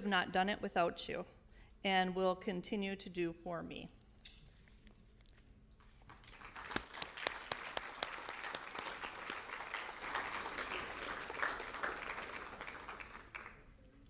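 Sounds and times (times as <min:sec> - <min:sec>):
audience applause: 0:06.1 - 0:13.7.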